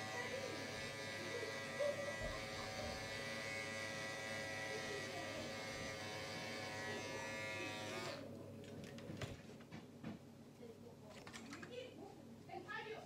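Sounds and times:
electric hair clippers buzzing: 0.0s - 8.2s.

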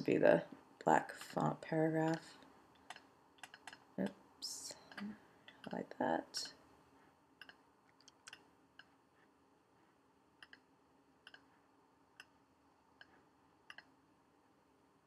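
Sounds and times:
computer mouse clicks: 2.1s - 4.1s, 7.4s - 9.0s, 10.4s - 11.5s, 13.0s - 13.9s.

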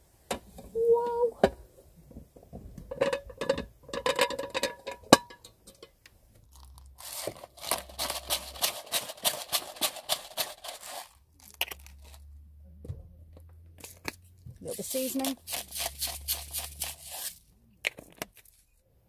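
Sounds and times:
metal clinks and scrapes on pan: 2.9s - 6.0s
rapid crunching strokes: 7.0s - 12.2s, 14.6s - 17.5s.

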